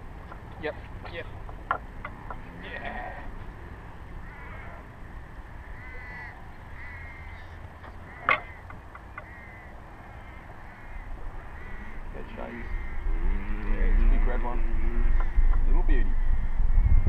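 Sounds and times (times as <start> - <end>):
bird cawing: 1.7 - 17.0
low rumble: 10.0 - 17.0.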